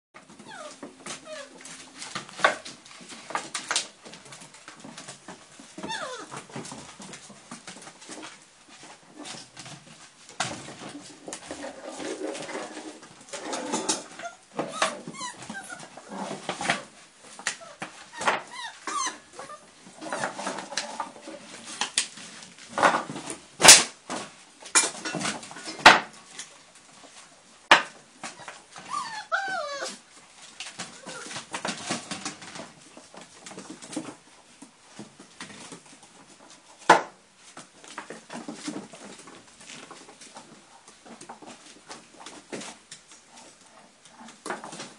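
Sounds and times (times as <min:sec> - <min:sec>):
puppies whimpering and whining: 0:00.4 - 0:01.8, 0:05.8 - 0:06.4, 0:14.1 - 0:16.8, 0:17.6 - 0:20.4, 0:28.3 - 0:30.0, 0:30.9 - 0:31.4.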